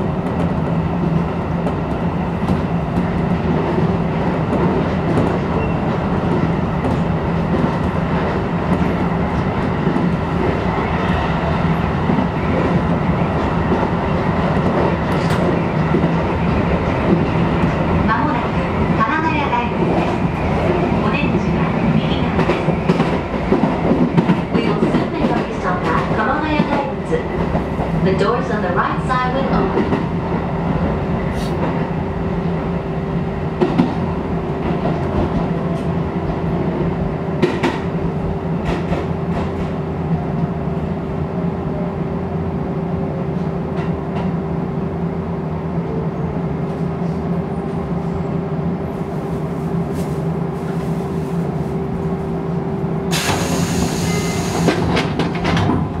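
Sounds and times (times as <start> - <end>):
electric train hum: 0.0 - 56.0
loud hissing: 53.1 - 54.8
clicks in train cab: 54.5 - 55.9.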